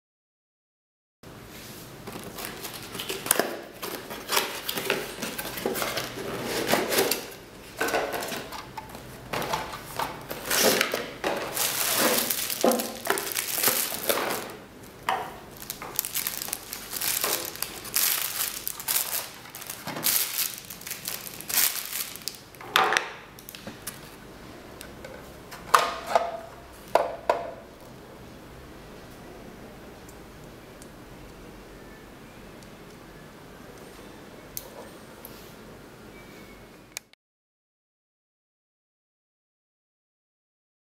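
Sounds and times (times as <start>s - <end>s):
plastic bag crinkling: 2.0s - 22.6s.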